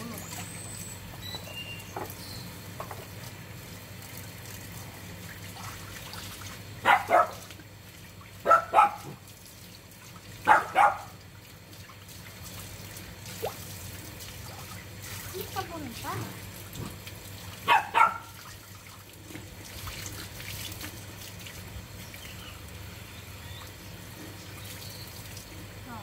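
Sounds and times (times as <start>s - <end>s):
hose water trickling: 0.0s - 26.0s
dog barking: 6.8s - 7.5s, 8.4s - 9.2s, 10.4s - 11.2s, 17.6s - 18.4s.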